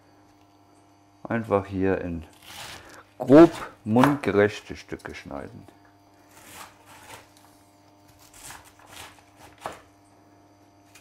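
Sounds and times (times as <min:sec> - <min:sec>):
knife cutting cabbage on board: 0:02.3 - 0:04.2, 0:06.3 - 0:09.9.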